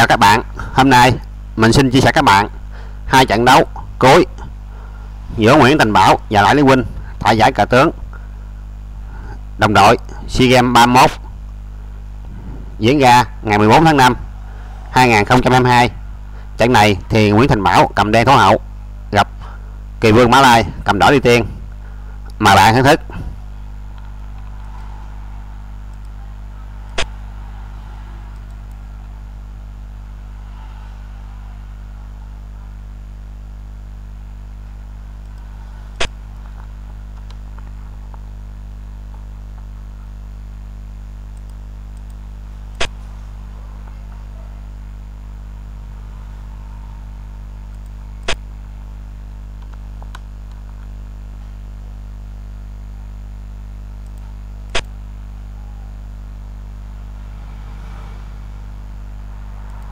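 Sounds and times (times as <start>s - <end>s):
low electrical hum: 0.0s - 59.9s
sharp clicks: 25.9s - 26.2s, 26.8s - 27.2s, 54.0s - 55.0s.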